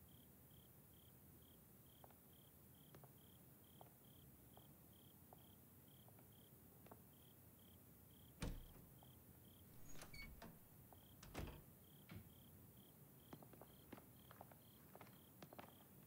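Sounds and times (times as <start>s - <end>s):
cricket chirping: 0.0s - 6.5s, 7.1s - 15.9s
thump: 8.4s - 8.8s.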